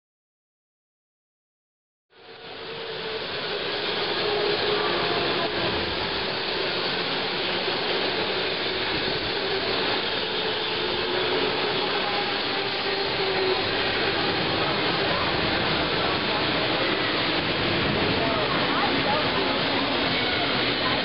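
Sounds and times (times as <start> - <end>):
go-karts and tyres rushing: 2.4 - 21.0.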